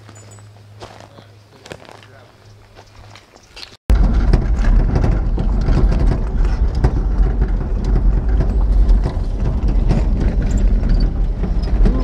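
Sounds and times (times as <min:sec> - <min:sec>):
vehicle engine and road rumble: 0:00.0 - 0:12.0
vehicle body rattling: 0:03.9 - 0:12.0.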